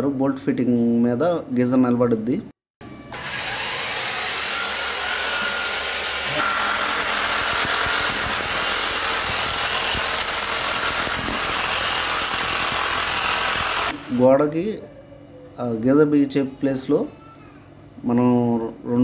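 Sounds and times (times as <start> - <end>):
electric drill boring into wall: 3.1 - 14.2.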